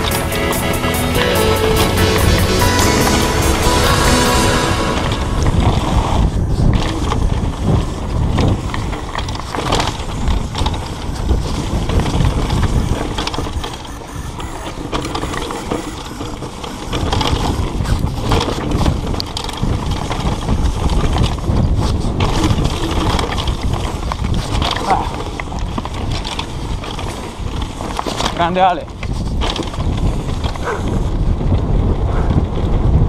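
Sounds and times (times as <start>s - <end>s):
tyres rumbling on dirt: 0.0s - 31.9s
bike rattling over bumps: 5.0s - 33.0s
freehub ratcheting: 6.7s - 20.2s.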